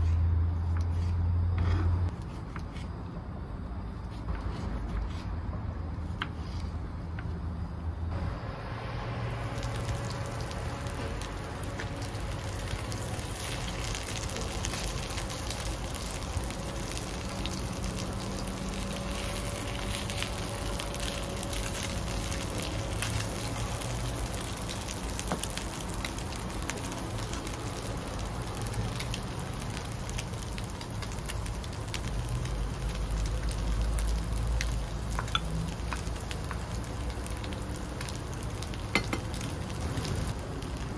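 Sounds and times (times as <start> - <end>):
wooden spatula scraping and tapping: 0.0 - 2.9
meatballs sizzling in oil: 8.8 - 40.9.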